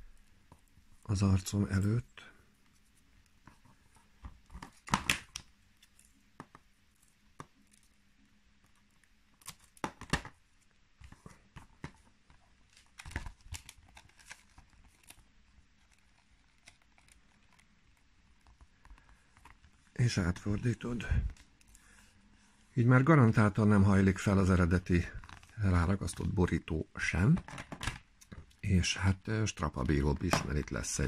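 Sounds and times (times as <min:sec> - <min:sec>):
paper crackling and rustling: 0:11.0 - 0:21.7.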